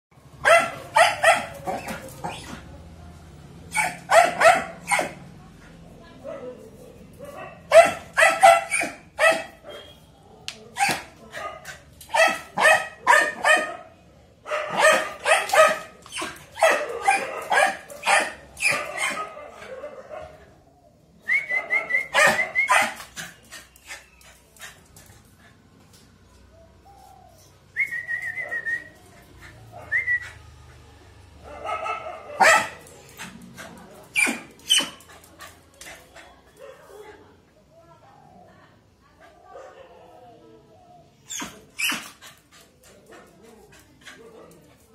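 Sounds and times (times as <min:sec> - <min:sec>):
small dog barking: 0:00.4 - 0:01.9, 0:03.7 - 0:05.2, 0:07.2 - 0:10.0, 0:10.8 - 0:13.9, 0:14.5 - 0:20.4, 0:22.1 - 0:23.0, 0:31.4 - 0:33.3.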